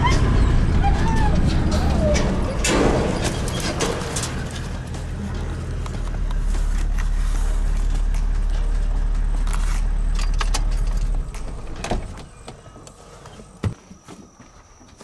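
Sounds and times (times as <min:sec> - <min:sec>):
knocks and rattles: 0:00.0 - 0:07.0
engine and road rumble: 0:00.0 - 0:15.0.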